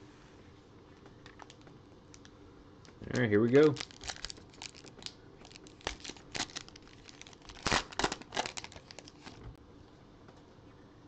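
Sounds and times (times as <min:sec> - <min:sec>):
foil wrapper tearing and crinkling: 0:03.4 - 0:09.4.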